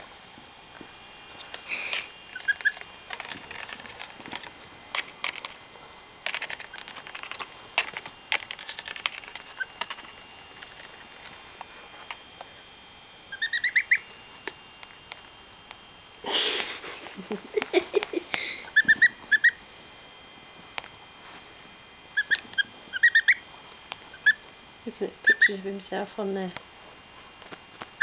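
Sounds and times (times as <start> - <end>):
rustling: 1.3 - 12.7
gosling peeping: 2.2 - 4.0, 8.5 - 11.6, 13.3 - 14.4, 17.6 - 19.6, 22.1 - 25.9.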